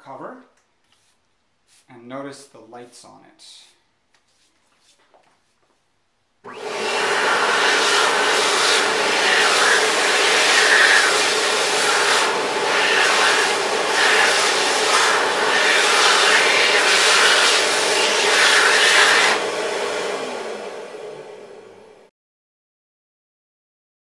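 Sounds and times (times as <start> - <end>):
hand dryer blowing air: 6.5 - 22.1.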